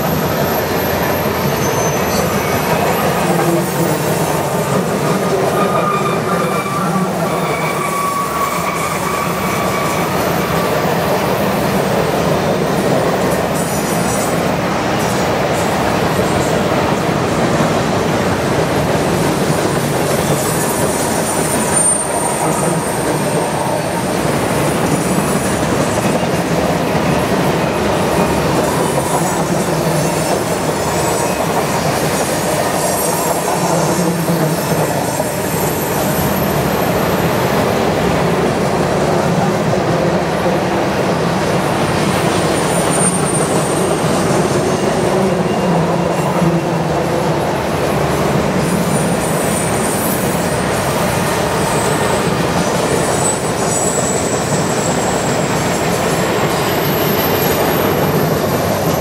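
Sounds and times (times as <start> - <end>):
train wheels rumbling on rails: 0.0 - 59.0
high-pitched wheel squeal: 0.2 - 3.3, 5.5 - 10.6, 20.2 - 23.8, 42.5 - 43.9, 52.9 - 55.9.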